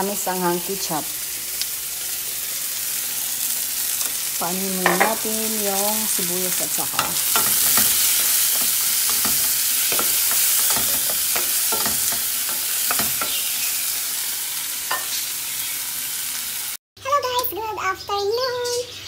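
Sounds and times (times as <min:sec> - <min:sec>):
vegetables sizzling in hot oil: 0:00.0 - 0:16.8
utensil scraping pan: 0:06.7 - 0:13.7.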